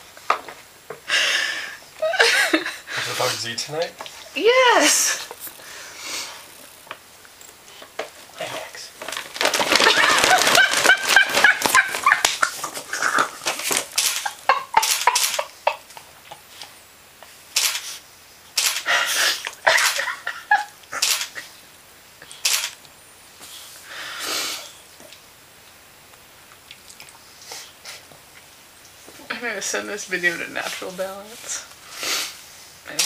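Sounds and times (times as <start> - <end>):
food bag crinkling: 6.4 - 15.5.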